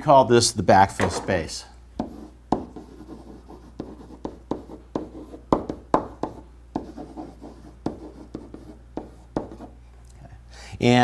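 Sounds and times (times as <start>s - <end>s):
marker writing on whiteboard: 2.0s - 9.8s.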